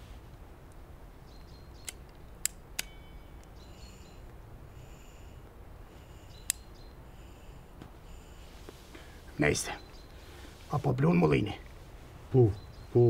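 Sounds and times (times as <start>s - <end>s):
lighter clicks: 6.4s - 6.7s.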